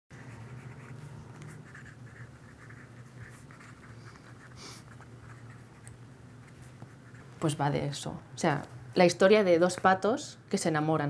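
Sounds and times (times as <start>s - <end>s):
pen scratching on paper: 0.2s - 7.5s
low steady hum: 0.2s - 11.0s.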